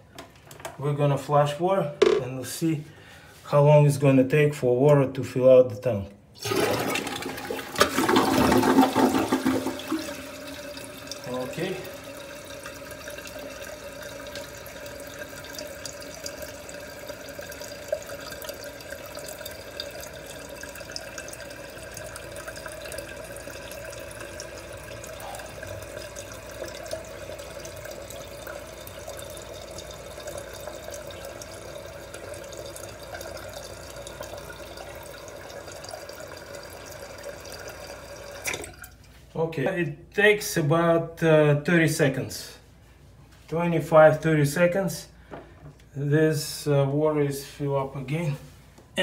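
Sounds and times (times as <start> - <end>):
toilet tank refilling: 6.4 - 39.2.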